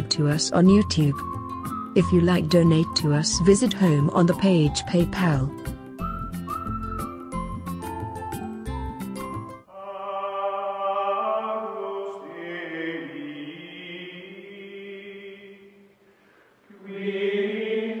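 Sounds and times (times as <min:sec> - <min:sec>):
slow choral singing: 0:09.7 - 0:18.0.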